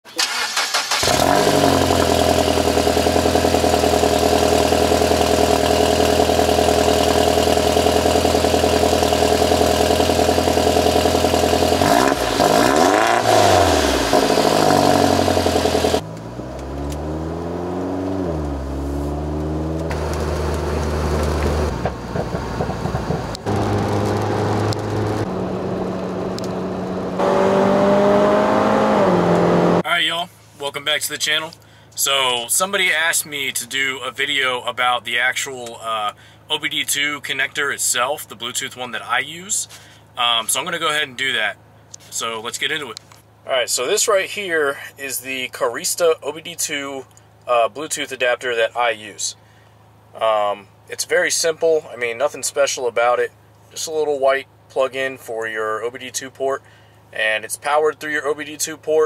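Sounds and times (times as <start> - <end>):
car engine starting and revving: 0.2 - 29.8.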